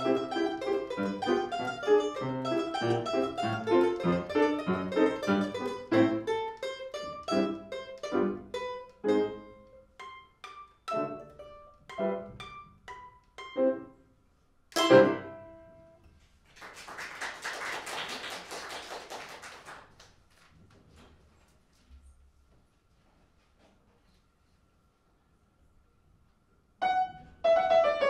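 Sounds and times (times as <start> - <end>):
domra and piano playing: 0.0 - 14.0, 14.8 - 16.0, 26.8 - 28.0
audience applauding: 16.4 - 20.4.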